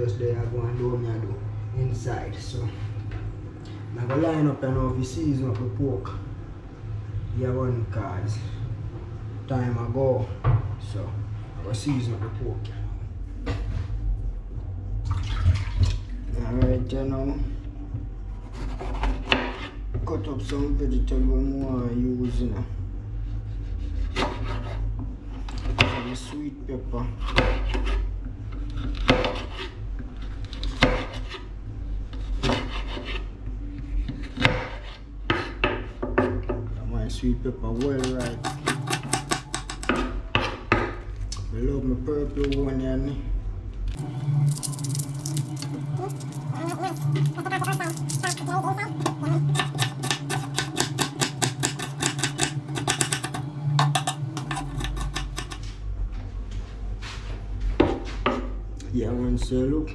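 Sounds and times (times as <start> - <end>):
low hum: 0.0 - 19.2, 19.8 - 25.7, 31.4 - 32.4, 35.0 - 59.9
knife slicing pepper on board: 37.8 - 40.6, 44.9 - 55.6.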